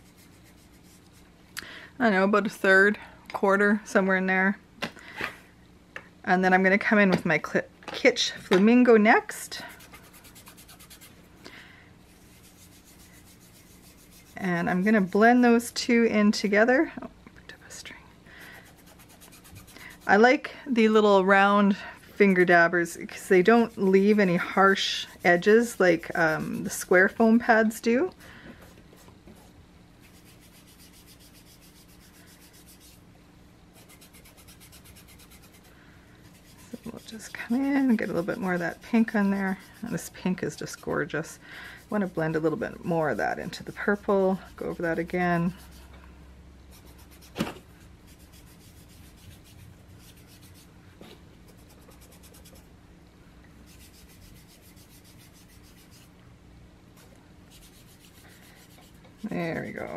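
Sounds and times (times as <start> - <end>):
foam dabber scrubbing ink pad: 36.4 - 40.6.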